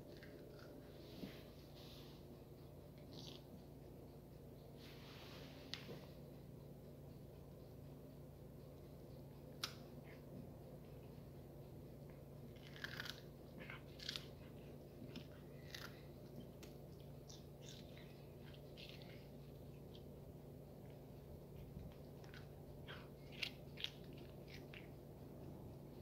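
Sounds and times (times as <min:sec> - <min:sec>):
cat crunching cucumber: 0:03.0 - 0:03.5, 0:12.5 - 0:20.2, 0:20.8 - 0:25.1.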